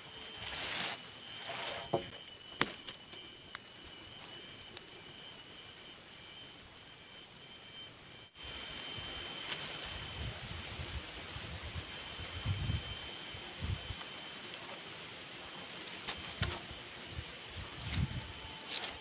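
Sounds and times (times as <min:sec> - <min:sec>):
high-pitched insect buzz: 0:00.0 - 0:19.0
wind rumble on microphone: 0:09.9 - 0:14.0, 0:16.4 - 0:18.5.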